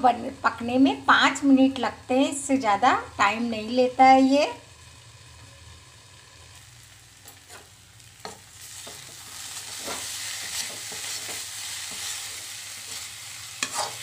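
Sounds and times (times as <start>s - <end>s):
curry sizzling in a pan: 0.2s - 14.0s
spatula scraping a pan: 7.2s - 14.0s
spatula clacking on pan: 13.6s - 14.0s.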